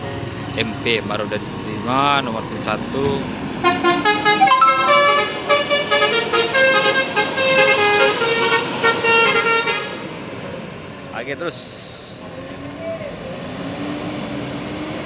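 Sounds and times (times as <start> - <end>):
musical air horn tune: 3.8 - 6.5.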